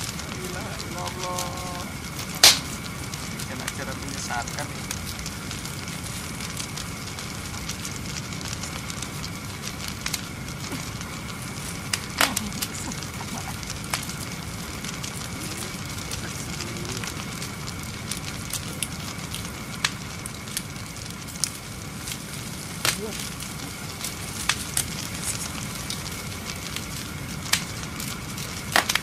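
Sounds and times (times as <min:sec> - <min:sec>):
faint high hum: 0:00.0 - 0:28.8
wood fire crackling: 0:00.0 - 0:29.0.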